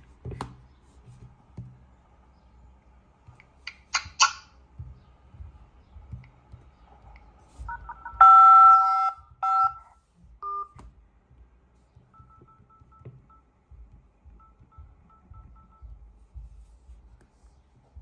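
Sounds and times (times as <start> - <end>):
two-tone dial tone: 7.7 - 10.8.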